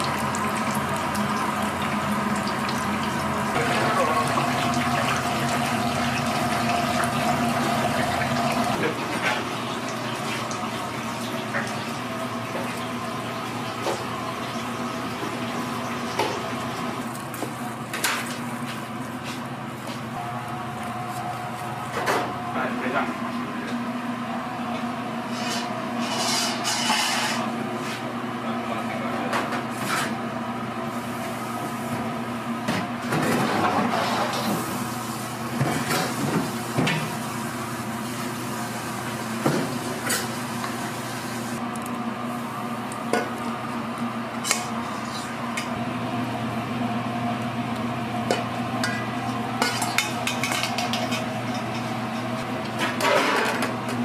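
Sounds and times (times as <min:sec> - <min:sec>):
steady machine hum: 0:00.0 - 0:29.3, 0:30.1 - 0:54.0
dishes and utensils clattering: 0:49.6 - 0:53.7.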